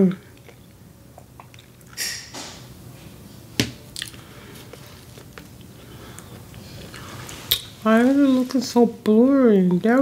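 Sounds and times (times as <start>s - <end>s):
wet chewing mouth sounds: 0.4s - 2.0s.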